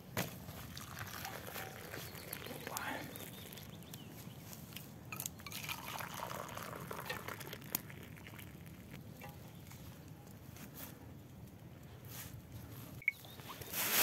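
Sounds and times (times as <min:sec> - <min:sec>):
tea pouring into mugs: 0:00.5 - 0:04.3, 0:05.1 - 0:09.7.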